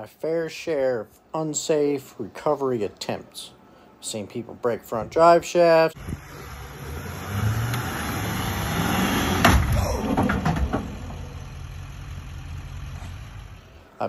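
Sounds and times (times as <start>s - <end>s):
vehicle engine running: 6.0s - 13.8s
sharp knocks: 9.4s - 11.2s.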